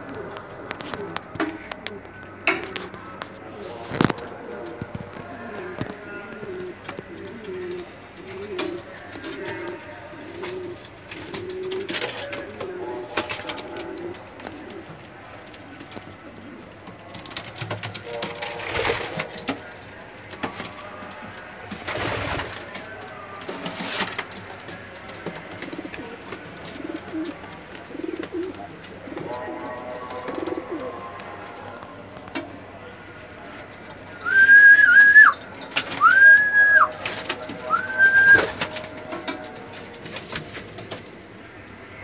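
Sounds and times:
pigeons cooing: 5.4 - 31.2, 33.8 - 39.4.

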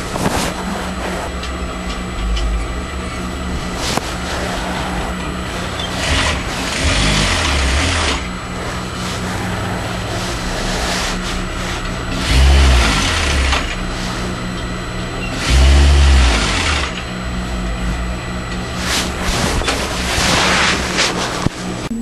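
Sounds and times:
sewing machine stitching: 4.2 - 8.3, 9.2 - 14.2, 15.3 - 17.0.

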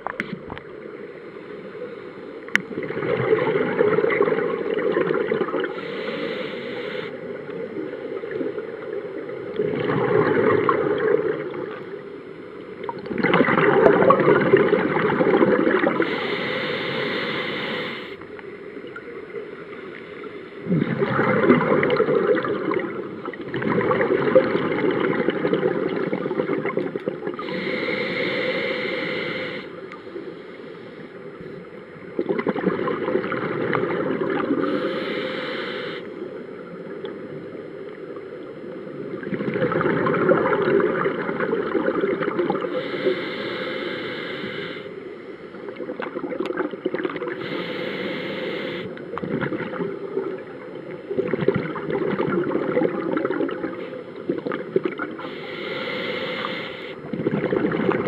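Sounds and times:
exhaled bubbles rumbling underwater: 0.0 - 30.5, 31.1 - 58.0
regulator inhalation hiss: 5.7 - 7.3, 15.9 - 18.2, 27.4 - 31.1, 34.6 - 36.2, 42.7 - 45.0, 47.3 - 49.0, 55.2 - 57.0.

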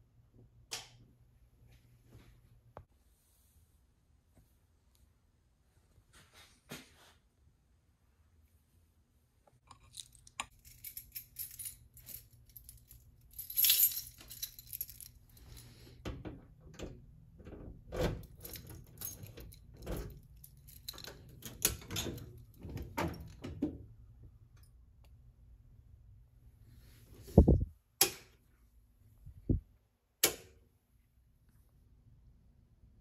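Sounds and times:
keys jangling: 9.7 - 15.8, 18.1 - 23.4.

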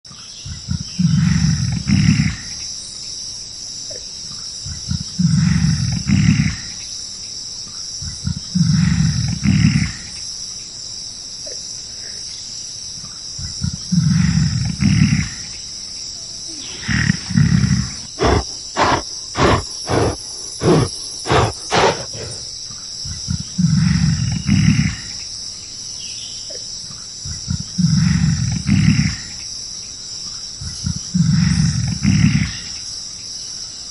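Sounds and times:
gorilla roaring: 16.5 - 22.5.

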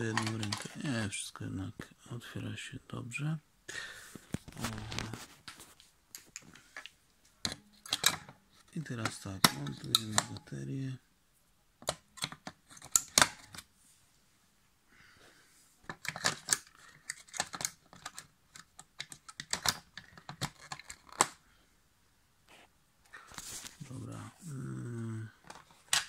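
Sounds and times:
batteries clicking into plastic compartment: 0.1 - 0.8, 7.4 - 8.4, 15.9 - 21.4.

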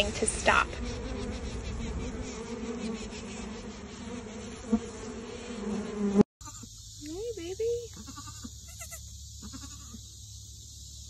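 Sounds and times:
bees buzzing: 0.0 - 7.9.

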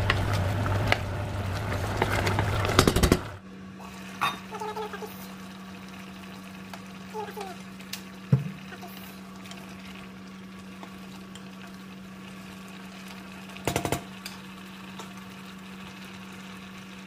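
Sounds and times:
low hum: 0.0 - 3.8.

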